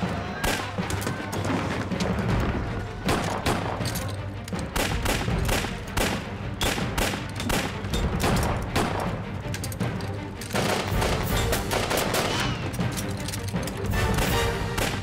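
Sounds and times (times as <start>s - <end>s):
background music: 0.0s - 15.0s
pistol gunshots: 3.0s - 3.9s, 4.6s - 9.2s, 10.5s - 12.6s, 14.0s - 15.0s.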